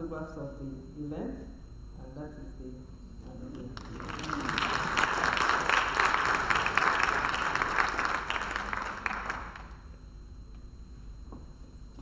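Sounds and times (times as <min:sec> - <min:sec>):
audience applauding: 0:03.8 - 0:09.8.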